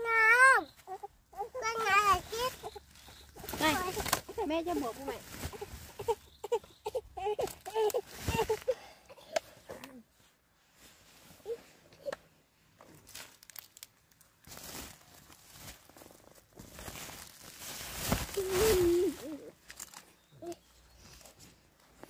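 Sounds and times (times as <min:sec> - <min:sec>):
plastic sack rustling: 0:01.6 - 0:06.5, 0:07.4 - 0:08.7, 0:12.9 - 0:20.1.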